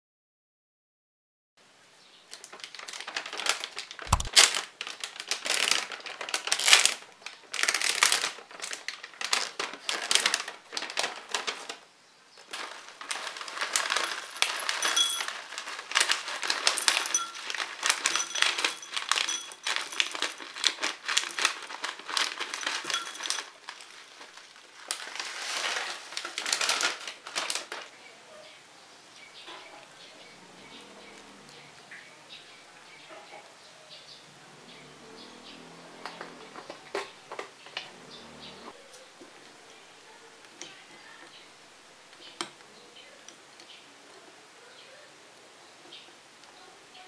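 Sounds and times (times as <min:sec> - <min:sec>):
plastic pouch crinkling: 0:02.3 - 0:11.8, 0:12.4 - 0:27.9
granola rattling into ceramic bowl: 0:12.6 - 0:27.8.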